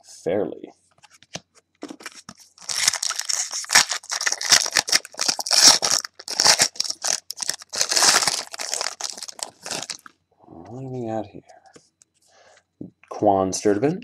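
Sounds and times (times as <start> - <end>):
foil wrapper tearing and crinkling: 1.9 - 10.1.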